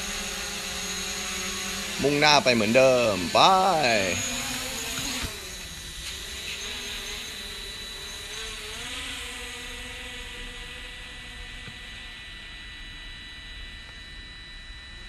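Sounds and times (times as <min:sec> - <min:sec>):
drone propellers buzzing: 0:00.0 - 0:10.2.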